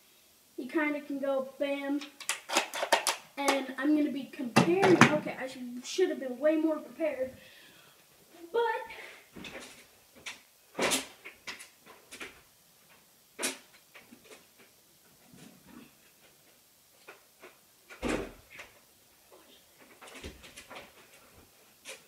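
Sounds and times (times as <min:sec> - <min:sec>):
objects knocking and clicking: 0:02.0 - 0:03.2.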